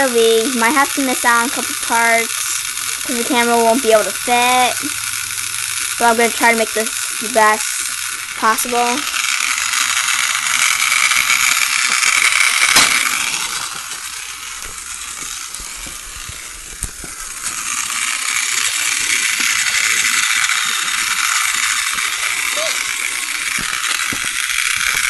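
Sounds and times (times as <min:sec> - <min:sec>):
toy train rattling whir: 0:00.0 - 0:25.0.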